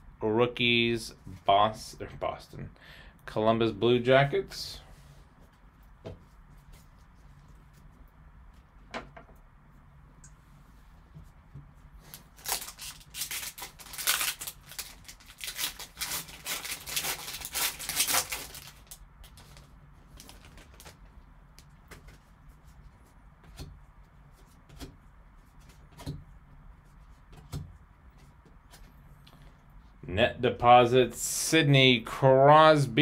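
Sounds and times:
foil wrapper tearing and crinkling: 12.1s - 21.0s.

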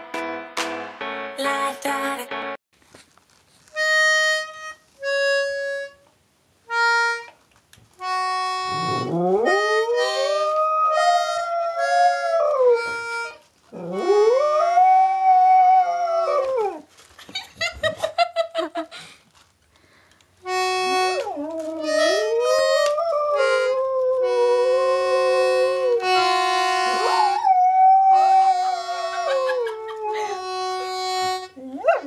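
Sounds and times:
toy accordion notes and chords: 0.0s - 2.6s, 3.8s - 6.1s, 6.7s - 7.4s, 8.0s - 10.4s, 12.8s - 13.4s, 20.4s - 21.2s, 21.8s - 27.3s, 30.2s - 31.6s
dog howling: 8.8s - 12.9s, 13.7s - 16.8s, 21.2s - 26.2s, 26.9s - 31.0s, 31.6s - 32.0s.

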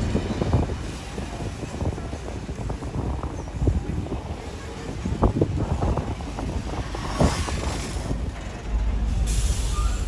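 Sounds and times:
train carriages rumbling: 0.0s - 10.0s
steam hiss: 9.1s - 10.0s.

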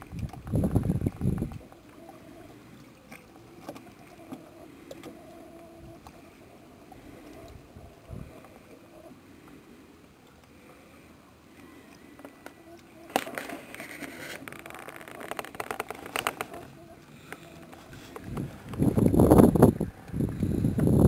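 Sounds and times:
wind buffeting microphone: 0.0s - 1.6s, 7.6s - 8.3s, 18.1s - 21.0s
faint steady hum: 0.0s - 21.0s
soft water sounds: 0.0s - 21.0s.

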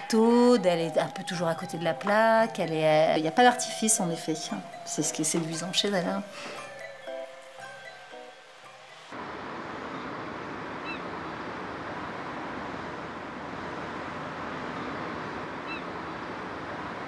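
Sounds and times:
bird chirping: 0.0s - 9.1s, 10.8s - 11.6s, 14.7s - 16.3s
industrial rumble: 9.2s - 17.0s.

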